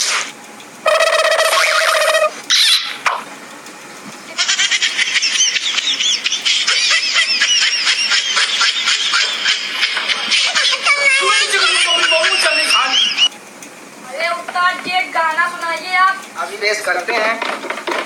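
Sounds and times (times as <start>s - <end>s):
horn-like tone: 0.8s - 2.3s
fast high chirps: 0.8s - 3.3s, 4.4s - 13.3s.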